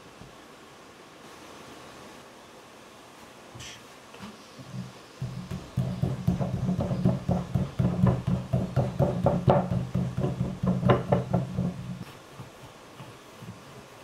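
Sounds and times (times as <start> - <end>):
fist pounding clay: 5.2 - 12.0.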